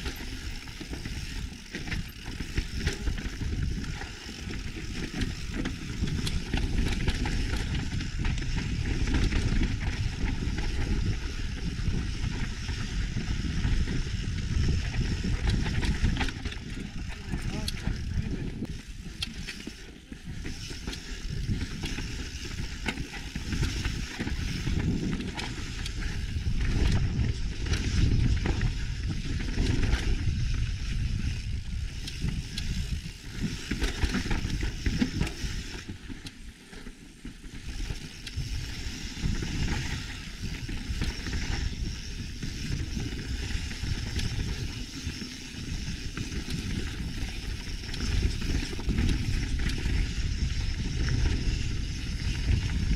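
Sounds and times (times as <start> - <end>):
wind buffeting microphone: 0.0 - 35.9, 37.6 - 52.9
bike tyres crunching over gravel: 0.0 - 52.9.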